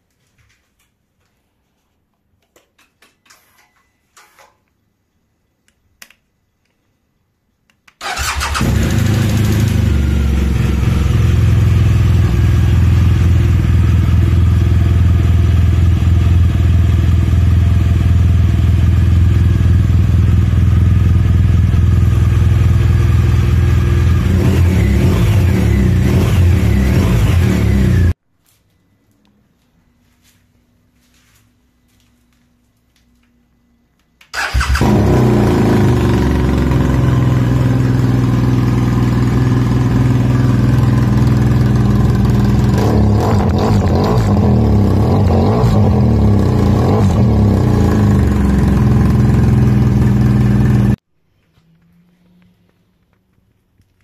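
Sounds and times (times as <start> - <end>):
motorcycle engine revving: 8.0 - 28.2, 34.4 - 52.9
motorcycle engine idling: 35.6 - 42.8, 47.4 - 51.0.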